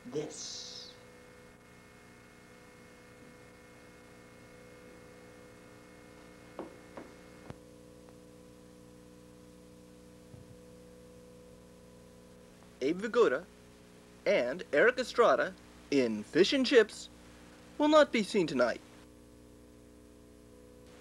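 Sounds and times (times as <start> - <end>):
electrical hum: 0.0 - 21.0
faint knock: 6.5 - 7.2.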